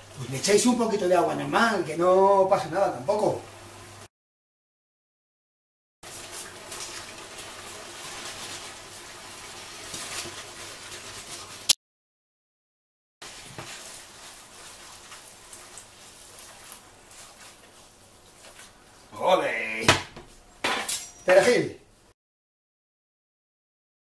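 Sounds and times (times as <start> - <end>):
sauce sizzling in a frying pan: 6.1 - 11.7, 13.2 - 19.2
spaghetti stirred into sauce: 6.1 - 11.7, 13.2 - 19.2.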